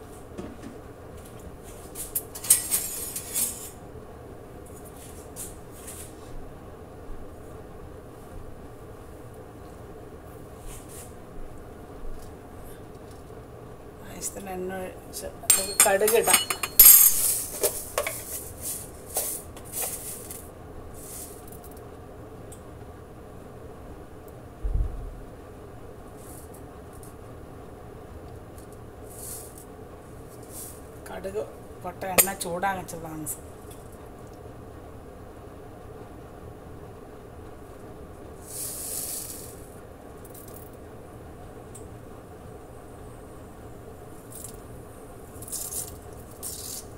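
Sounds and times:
steady low hum: 0.0 - 46.9
rustling scrapes of seeds: 10.6 - 11.1, 17.2 - 21.6, 29.1 - 31.0, 38.4 - 39.7, 45.4 - 46.9
spoon clinking in seeds: 15.5 - 18.3.

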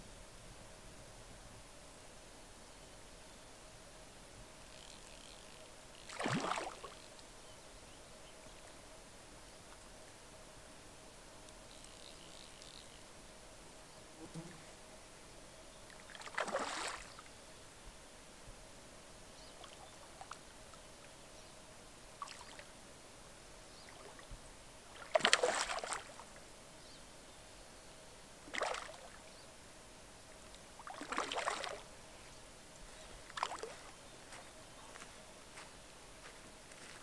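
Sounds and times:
fish splashing at water surface: 6.1 - 7.0, 16.2 - 17.1, 25.0 - 26.2, 30.9 - 31.8.

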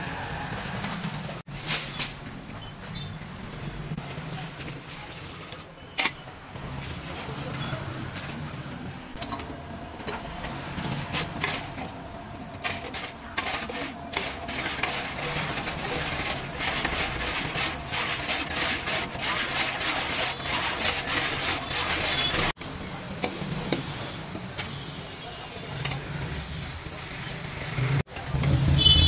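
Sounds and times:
low gas burner roar: 6.5 - 29.0
metal ladle scraping pot: 12.6 - 22.5.

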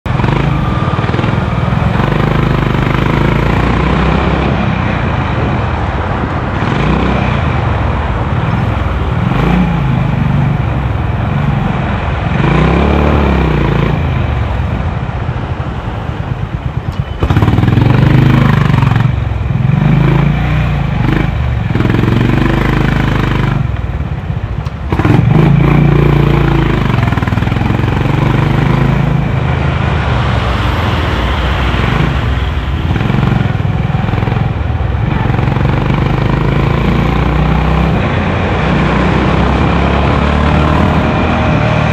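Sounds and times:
motorcycle engine accelerating: 0.1 - 5.6, 16.6 - 41.9.

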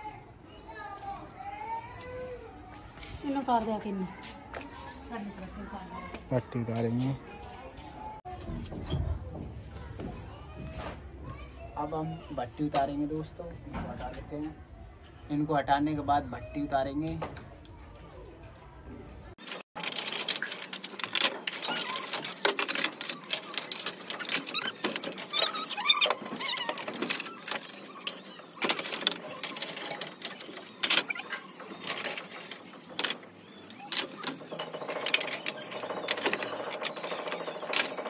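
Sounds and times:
scraping squeak: 19.4 - 38.0.

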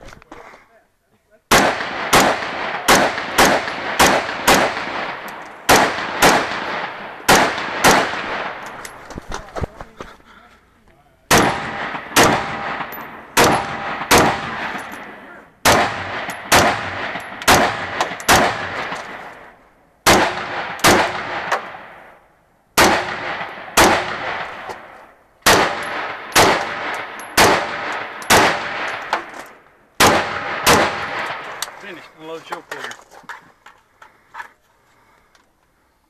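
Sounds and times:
rifle shots echoing: 1.5 - 8.9, 11.3 - 22.1, 22.8 - 29.4, 30.0 - 31.8.

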